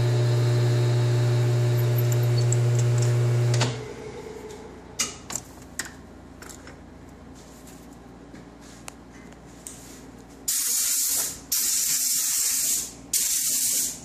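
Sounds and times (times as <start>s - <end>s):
lathe motor humming: 0.0s - 4.6s.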